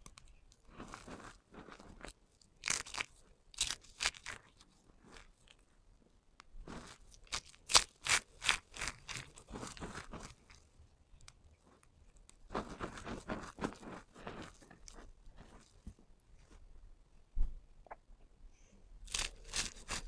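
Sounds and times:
soap shavings crunching: 0.0 - 5.6, 6.7 - 10.6, 19.1 - 20.0.

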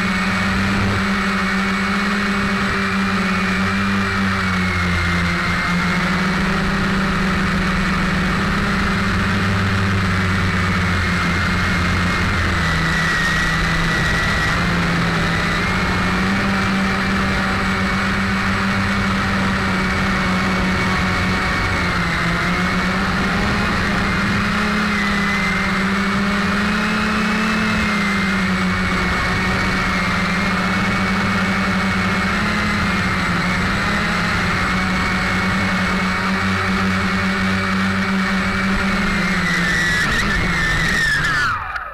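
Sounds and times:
quadcopter motors whining: 0.0 - 41.9.

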